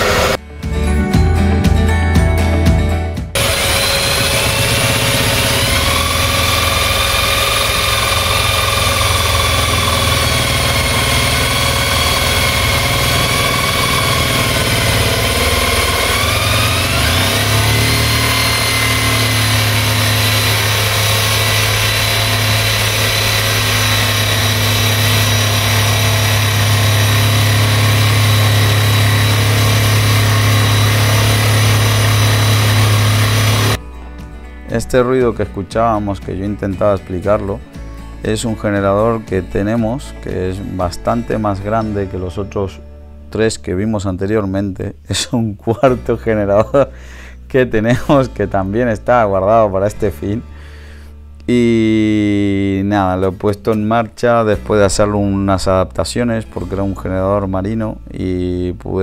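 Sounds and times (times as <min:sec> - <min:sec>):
diesel generator running: 0:00.0 - 0:00.4, 0:01.8 - 0:34.5
jigsaw cutting wood: 0:00.0 - 0:00.4, 0:03.4 - 0:33.8
motor whine: 0:00.0 - 0:00.4, 0:03.4 - 0:33.8
vacuum running: 0:00.0 - 0:00.4, 0:03.3 - 0:33.8.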